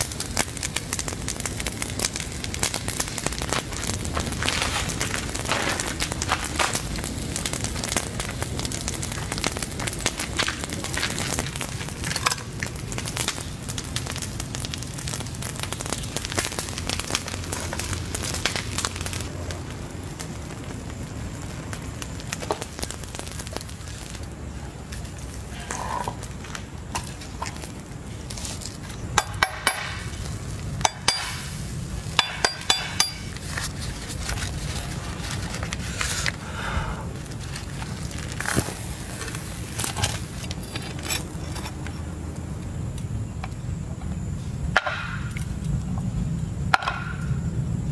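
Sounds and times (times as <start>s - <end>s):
campfire crackling: 0.0s - 47.9s
metal scoop scraping embers: 3.1s - 6.8s, 25.1s - 36.5s, 37.2s - 42.2s.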